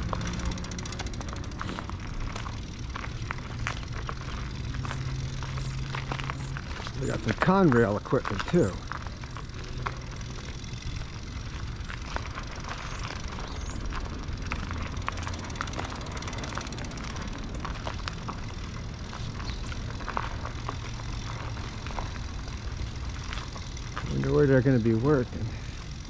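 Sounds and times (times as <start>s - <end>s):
low engine rumble: 0.0s - 26.0s
light clicks and crunches: 0.1s - 10.3s.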